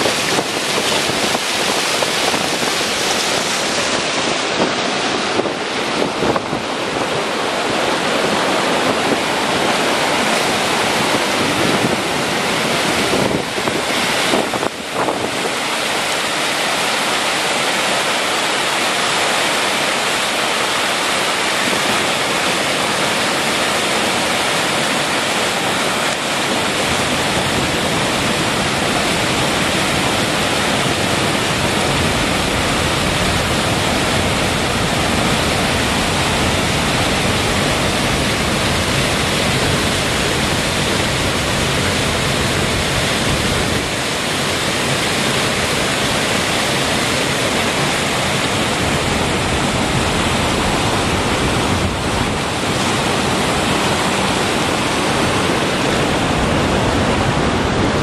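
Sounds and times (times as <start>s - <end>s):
waterfall rushing over rocks: 0.0s - 58.0s.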